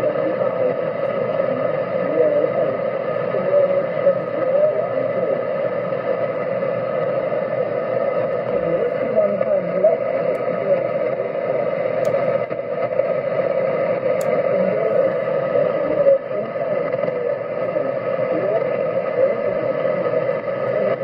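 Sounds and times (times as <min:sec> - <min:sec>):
shortwave radio static and hiss: 0:00.0 - 0:21.0
weak radio voice: 0:00.0 - 0:21.0.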